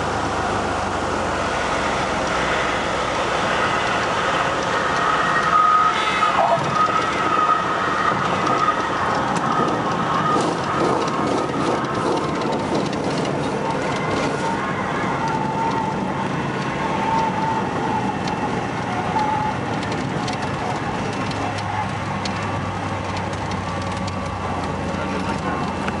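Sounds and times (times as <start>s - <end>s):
aircraft engine and propeller droning: 0.0s - 5.5s.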